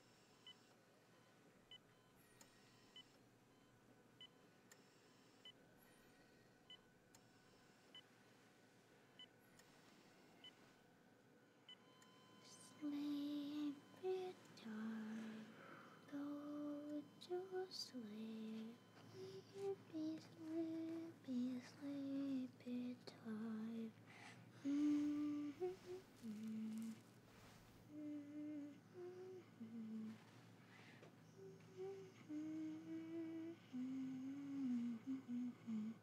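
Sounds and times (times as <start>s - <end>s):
person humming a lullaby: 12.2s - 36.0s.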